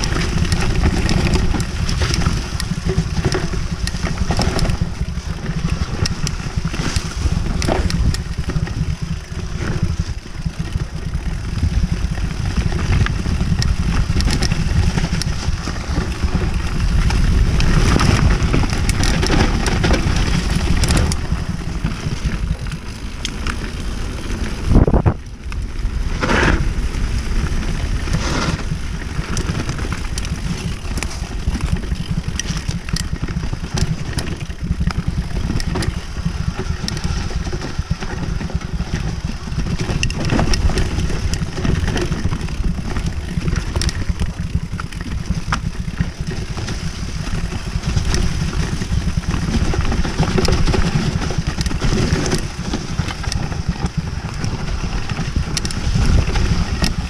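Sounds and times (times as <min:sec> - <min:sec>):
bike knocking and rattling: 0:00.0 - 0:57.0
bike tyre noise on dirt: 0:00.0 - 0:57.0
wind on microphone: 0:24.5 - 0:33.0, 0:33.8 - 0:57.0.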